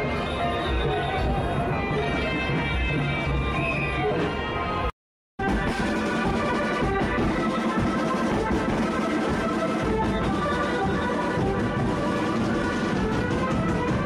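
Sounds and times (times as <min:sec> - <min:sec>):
brass band playing: 0:05.4 - 0:14.0.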